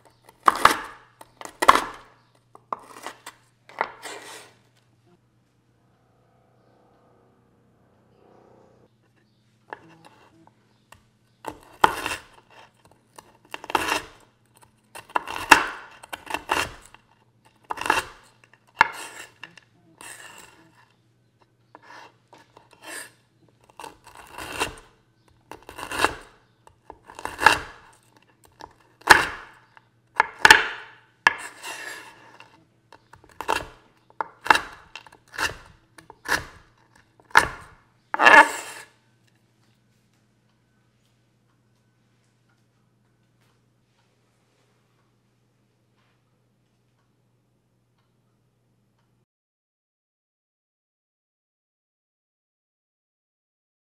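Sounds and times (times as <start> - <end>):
knife chopping crunchy cookies: 0.0 - 4.6, 9.7 - 21.0, 21.8 - 38.9.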